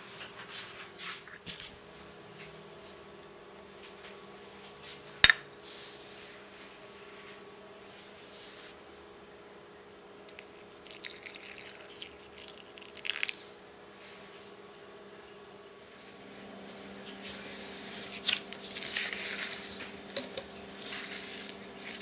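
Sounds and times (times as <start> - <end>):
faint steady hum: 0.0 - 22.0
crackly handling noises: 18.0 - 22.0.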